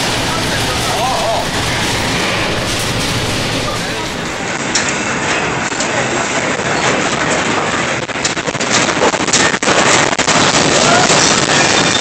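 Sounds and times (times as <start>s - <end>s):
sharp clatters: 0.0s - 5.0s
building rumbling and rattling: 0.0s - 12.0s.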